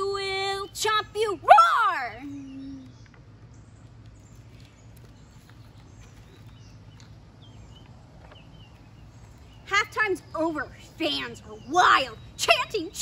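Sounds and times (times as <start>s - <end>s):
steady low hum: 0.0s - 13.0s
faint bird chirps: 2.2s - 12.6s.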